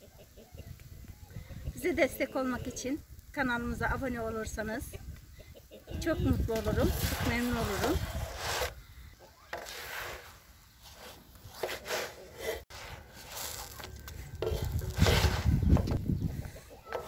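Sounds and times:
wooden spatula scraping metal griddle: 6.0s - 17.0s.

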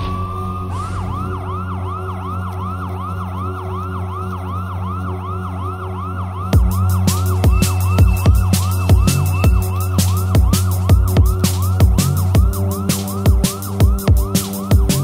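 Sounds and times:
low synth drone: 0.0s - 14.4s
siren-like synth line: 0.0s - 15.0s
electronic drums: 6.5s - 15.0s.

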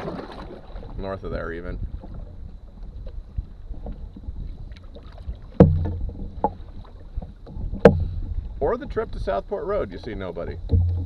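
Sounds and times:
water rumbling on canoe hull: 0.0s - 11.0s
paddle knocking canoe side: 2.8s - 11.0s.

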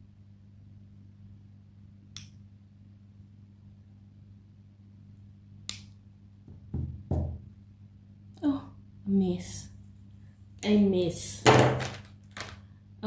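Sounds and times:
nail clipper snapping: 5.7s - 5.9s.

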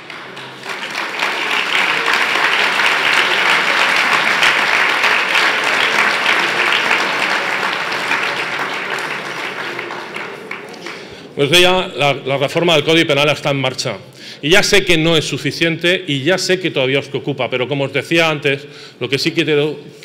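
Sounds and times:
large audience applauding: 0.0s - 11.4s.

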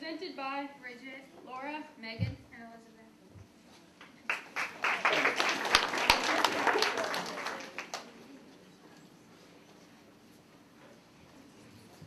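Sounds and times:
audience applauding: 4.2s - 8.3s.

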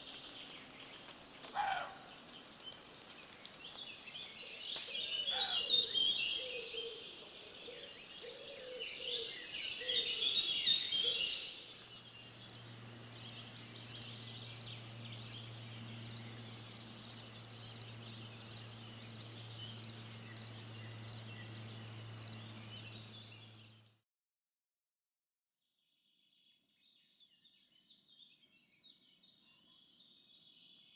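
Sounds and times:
birds singing: 0.0s - 23.9s, 26.5s - 30.9s
steady low hum: 8.9s - 23.8s.

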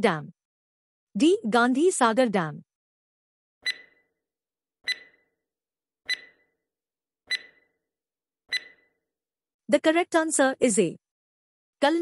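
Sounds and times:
countdown timer ticks: 3.6s - 4.0s, 4.9s - 5.2s, 6.1s - 6.4s, 7.3s - 7.6s, 8.5s - 8.8s.

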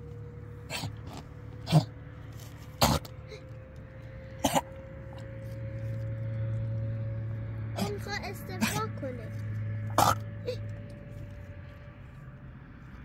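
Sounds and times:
steady low hum: 0.0s - 13.0s
short sharp coughs: 0.7s - 1.9s, 2.8s - 3.4s, 4.4s - 4.8s, 9.9s - 10.6s.

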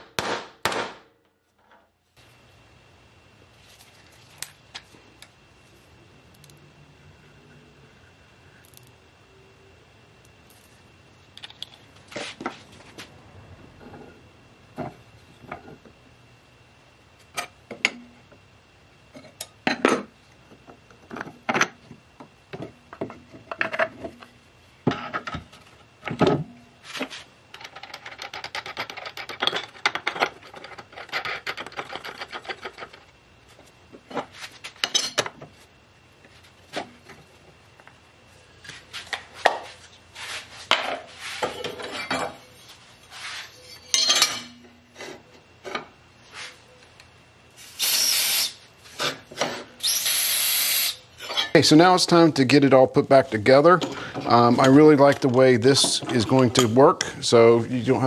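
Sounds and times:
metal hardware clinking: 43.7s - 44.7s.

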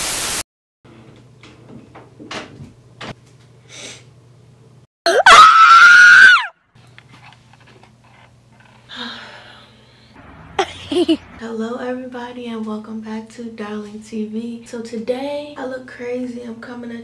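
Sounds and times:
boy screaming: 5.1s - 6.5s.

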